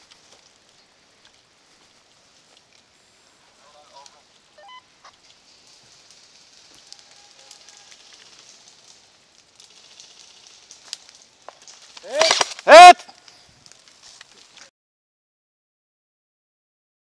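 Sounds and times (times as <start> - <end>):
twigs snapping: 0.0 - 2.9, 5.0 - 14.7
steady soft hiss: 0.0 - 12.6
footsteps rustling dry leaves: 0.0 - 14.7.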